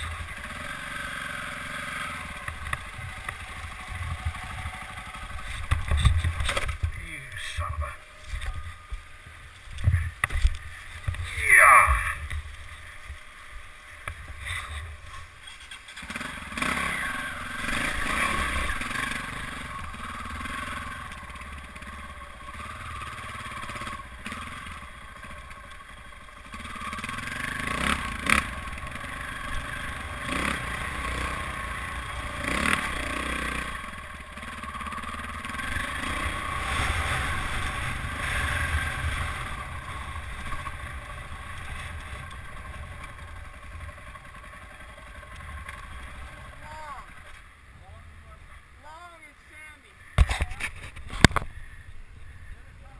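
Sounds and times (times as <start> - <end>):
dirt bike engine revving: 0.0 - 49.0.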